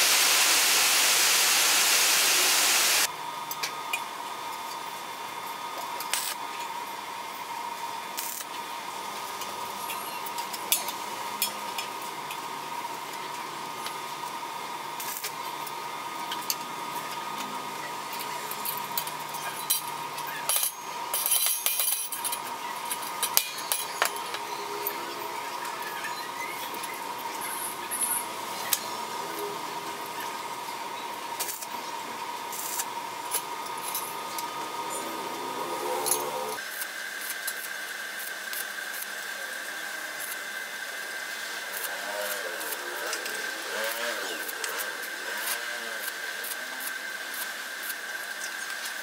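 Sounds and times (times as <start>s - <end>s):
high-pitched hum: 16.8s - 36.6s.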